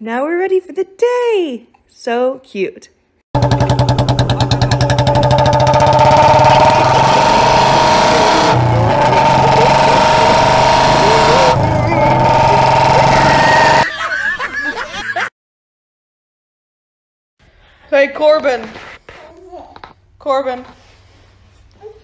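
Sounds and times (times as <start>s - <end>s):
small engine running: 3.4s - 13.8s.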